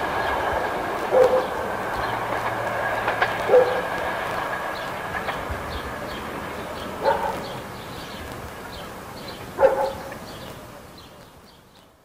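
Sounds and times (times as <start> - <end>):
train rumbling: 0.0 - 10.8
dog barking: 1.1 - 1.6, 3.4 - 3.9, 7.0 - 7.6, 9.5 - 10.2.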